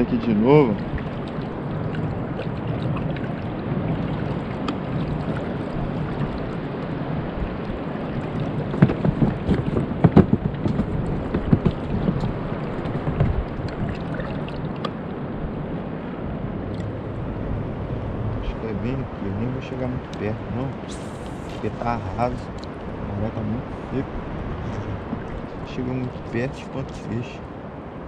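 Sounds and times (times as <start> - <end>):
water washing: 0.0 - 15.3, 16.6 - 27.3
wind noise: 0.0 - 28.0
kayak knocks: 8.2 - 15.1, 24.8 - 25.6.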